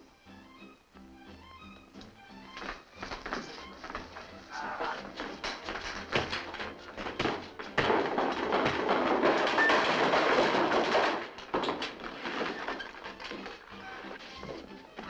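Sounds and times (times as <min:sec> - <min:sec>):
bodies and furniture crashing: 0:04.8 - 0:15.0
thuds and knocks of fistfight: 0:05.2 - 0:13.6.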